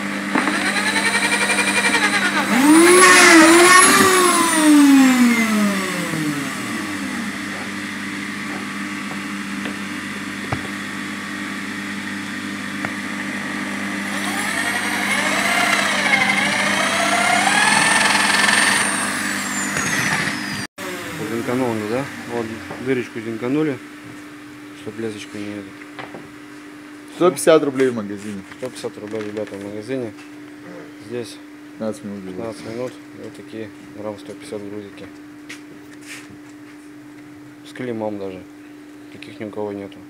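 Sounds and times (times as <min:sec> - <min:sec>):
electric drill boring: 0:00.3 - 0:07.9, 0:12.9 - 0:22.1.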